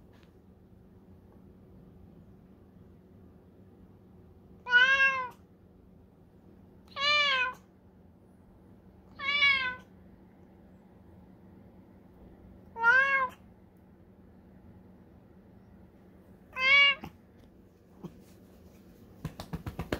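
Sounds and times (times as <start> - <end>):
cat meowing: 4.6 - 5.4, 6.9 - 7.7, 9.1 - 9.9, 12.7 - 13.4, 16.5 - 17.2.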